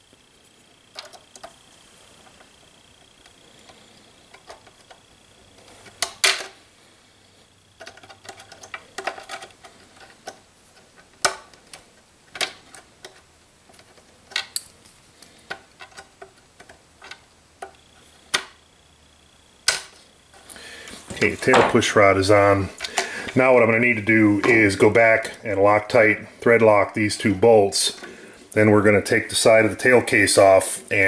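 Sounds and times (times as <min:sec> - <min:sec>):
small clicks of plastic parts: 0:00.9 - 0:01.6, 0:07.8 - 0:18.6.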